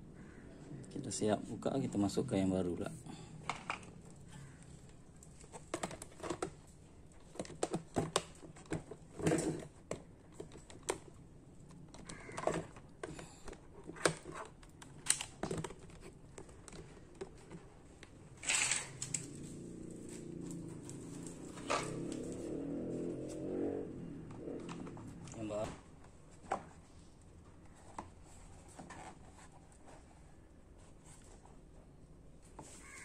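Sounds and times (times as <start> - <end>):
plastic parts clicking and tapping: 5.2 - 19.3.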